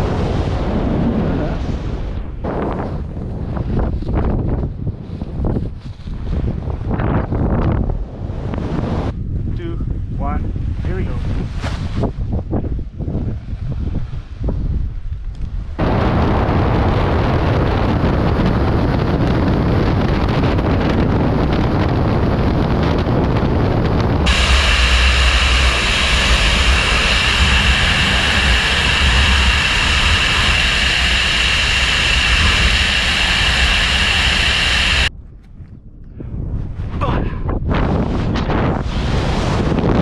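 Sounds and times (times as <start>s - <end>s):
deep rumble: 0.0s - 40.0s
wind rushing over microphone: 0.0s - 40.0s
steady high whine: 15.8s - 35.1s.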